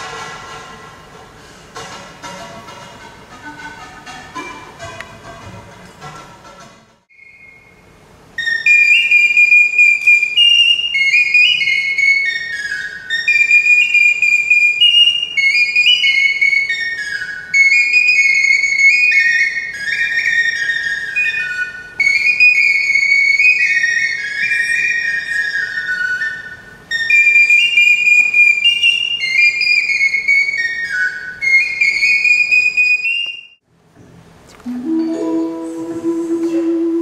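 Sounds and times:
whistle flute melody: 0:07.1 - 0:33.6, 0:34.7 - 0:37.0.

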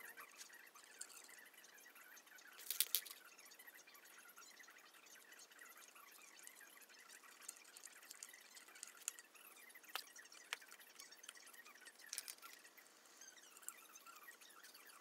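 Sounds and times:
screwdriver and metal fittings clicking: 0:02.6 - 0:03.2, 0:12.0 - 0:12.6.

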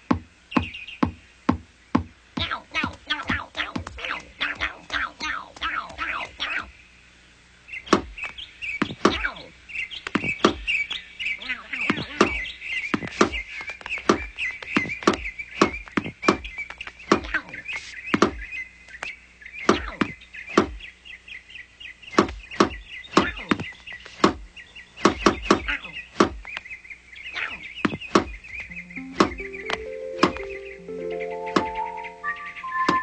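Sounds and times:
high bird twittering: 0:00.0 - 0:01.3, 0:01.9 - 0:06.9, 0:07.7 - 0:33.0
sharp irregular knocks: 0:00.0 - 0:05.0, 0:07.9 - 0:09.2, 0:10.0 - 0:10.7, 0:11.9 - 0:17.3, 0:18.1 - 0:18.4, 0:19.7 - 0:20.8, 0:22.1 - 0:24.4, 0:25.0 - 0:26.6, 0:27.8 - 0:28.4, 0:29.2 - 0:30.5.

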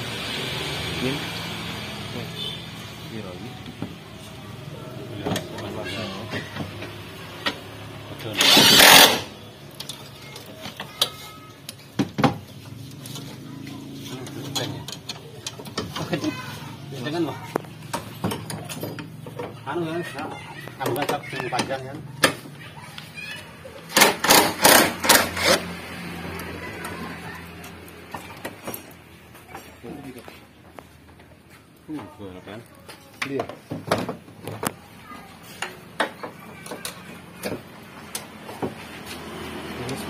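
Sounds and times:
impact wrench hammering: 0:08.4 - 0:09.3, 0:23.9 - 0:25.7.

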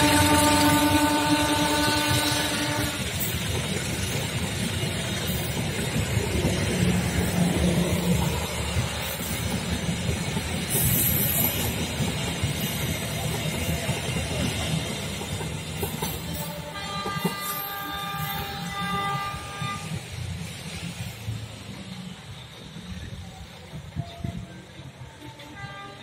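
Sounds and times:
train wheels on rails: 0:00.0 - 0:26.0.

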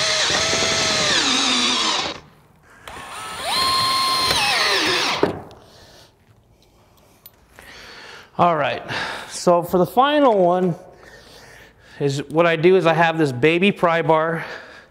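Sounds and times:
cordless drill driving screws: 0:00.0 - 0:05.3.

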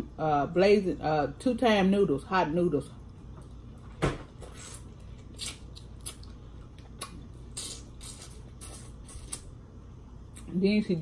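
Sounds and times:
shrimp being chewed: 0:04.5 - 0:09.5.

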